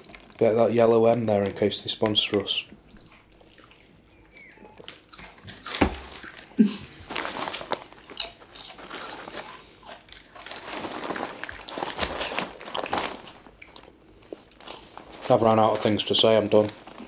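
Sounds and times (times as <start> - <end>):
people crunching crisps: 4.8 - 17.0
foil packets rustling: 4.9 - 17.0.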